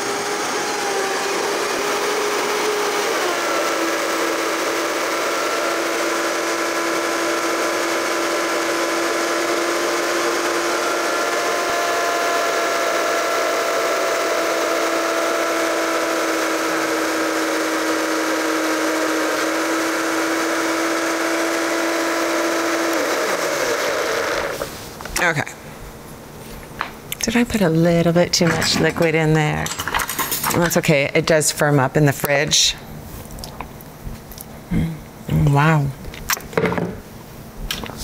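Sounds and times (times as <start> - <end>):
blender running: 0.0 - 24.7.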